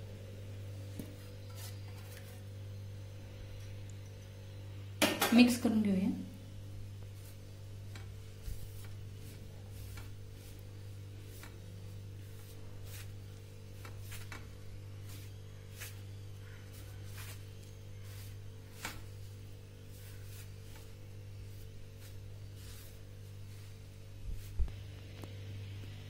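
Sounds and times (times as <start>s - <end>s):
low electrical hum: 0.0s - 26.0s
hands rubbing dough on metal: 1.0s - 2.5s, 6.8s - 25.0s.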